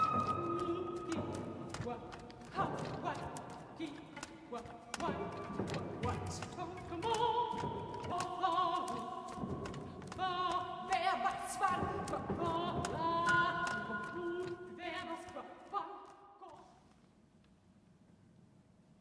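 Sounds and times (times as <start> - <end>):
sustained flute tones: 0.0 - 2.8
woman singing with vibrato: 0.0 - 16.8.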